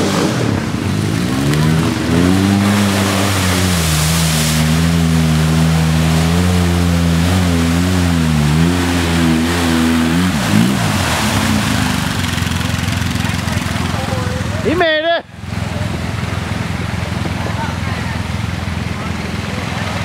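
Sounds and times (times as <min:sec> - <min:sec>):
engine revving hard: 0:00.0 - 0:14.8
mud and water spraying: 0:00.0 - 0:20.0.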